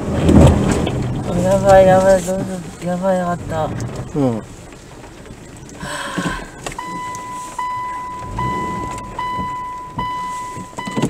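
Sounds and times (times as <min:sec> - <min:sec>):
low vehicle rumble: 0:00.0 - 0:11.0
car warning beeper: 0:05.6 - 0:11.0.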